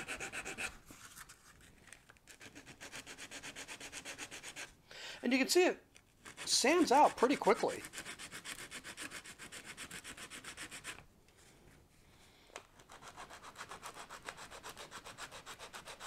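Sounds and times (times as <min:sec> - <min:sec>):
sandpaper rubbing by hand: 0:00.0 - 0:01.2, 0:02.3 - 0:04.7, 0:06.2 - 0:11.0, 0:12.9 - 0:16.0.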